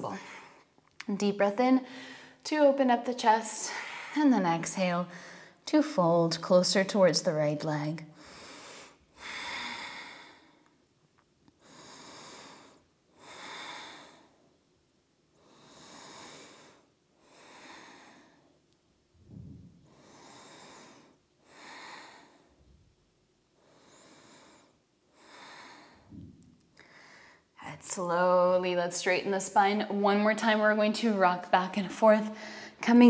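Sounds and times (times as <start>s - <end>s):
woman breathing deeply: 1.9s - 2.4s, 5.1s - 5.6s, 8.2s - 10.8s, 11.6s - 14.6s, 15.3s - 18.6s, 19.2s - 22.9s, 23.6s - 27.6s, 32.3s - 32.8s.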